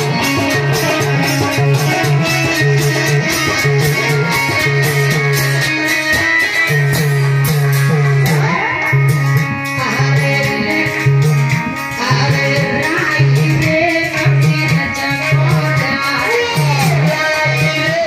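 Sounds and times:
melodic instrument line: 0:00.0 - 0:10.9
devotional music: 0:00.0 - 0:18.0
steady drum beat: 0:00.0 - 0:18.0.

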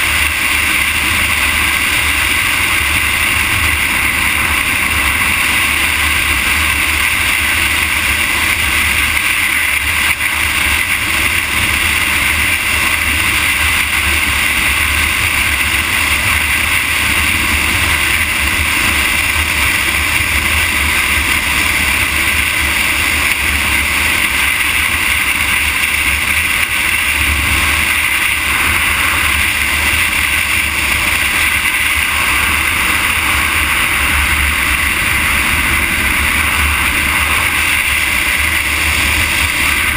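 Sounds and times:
wind and tyre noise on asphalt: 0:00.0 - 0:39.9.

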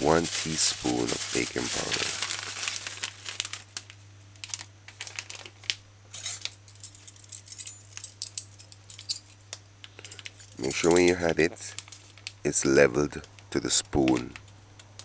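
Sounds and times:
steady low hum: 0:00.0 - 0:15.0
metal measuring spoons clinking: 0:10.0 - 0:11.4.

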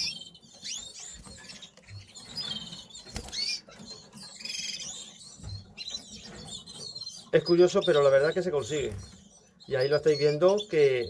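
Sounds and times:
canaries chirping: 0:00.0 - 0:11.0.

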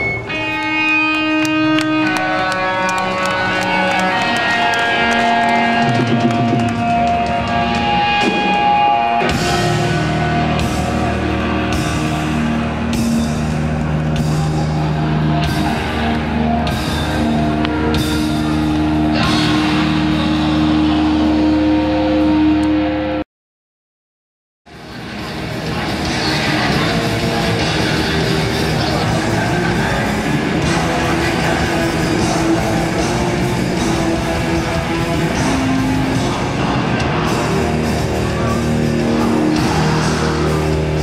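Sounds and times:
electric guitar ringing: 0:00.0 - 0:23.2
punk band playing live: 0:00.0 - 0:23.2, 0:24.7 - 0:41.0.

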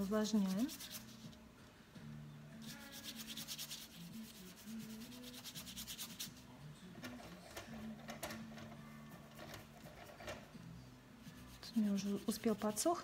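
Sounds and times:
paint brush scrubbing paper: 0:00.0 - 0:01.4, 0:02.6 - 0:06.4, 0:11.2 - 0:13.0.

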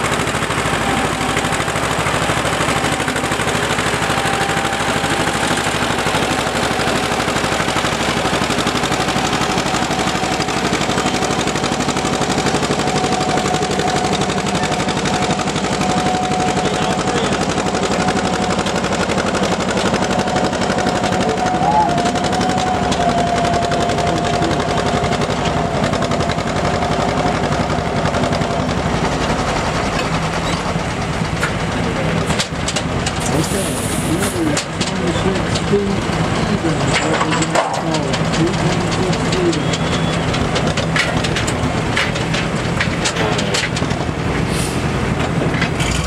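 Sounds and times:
steady whine: 0:00.0 - 0:33.6
tractor engine under full load: 0:00.0 - 0:46.0.

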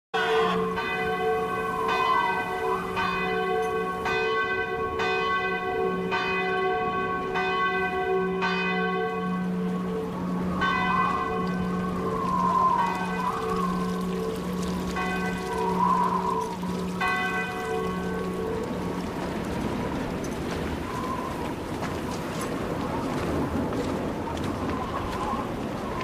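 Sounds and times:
church bells tolling: 0:00.1 - 0:20.9.

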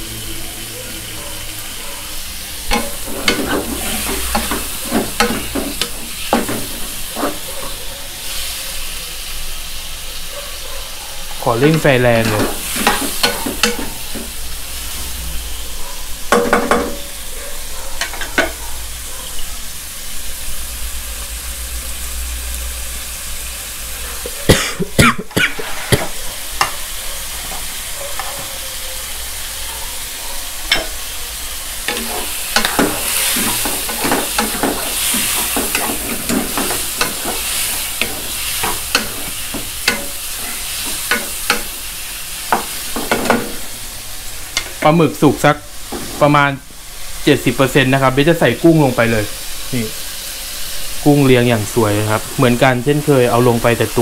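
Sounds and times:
squid sizzling in a wok: 0:00.0 - 0:54.0
wooden spatula scraping pan: 0:02.6 - 0:07.8, 0:25.5 - 0:26.2, 0:31.9 - 0:41.7, 0:45.9 - 0:46.4.

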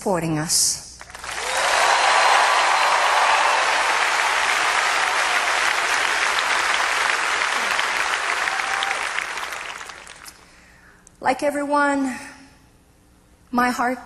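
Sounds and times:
theatre audience applauding: 0:01.0 - 0:10.5.

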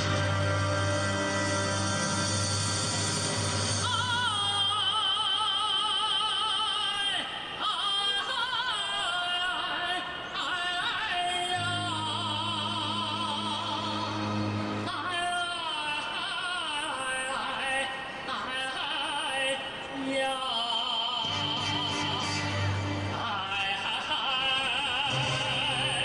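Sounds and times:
folk dance music: 0:00.0 - 0:05.0, 0:11.6 - 0:15.4, 0:21.2 - 0:23.6.

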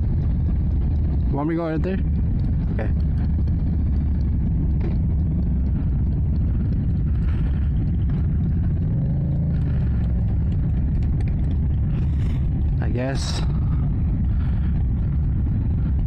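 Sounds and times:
motorcycle engine rumbling: 0:00.0 - 0:16.0.

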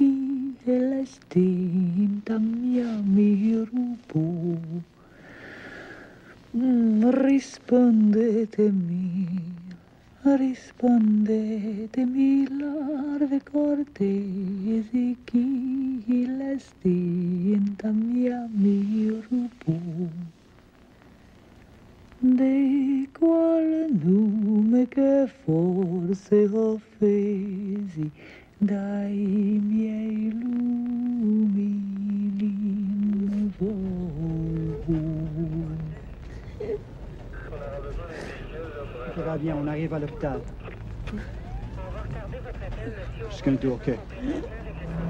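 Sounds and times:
woman humming a melody: 0:29.9 - 0:36.0.

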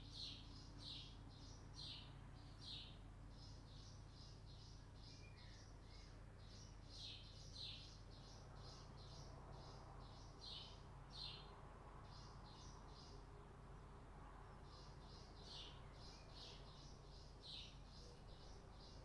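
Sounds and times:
bird chirping: 0:00.0 - 0:13.3, 0:14.6 - 0:19.0.

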